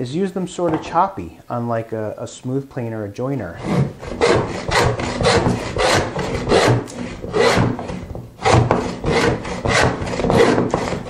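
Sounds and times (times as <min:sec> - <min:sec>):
plane rasping through wood: 0:03.6 - 0:11.0.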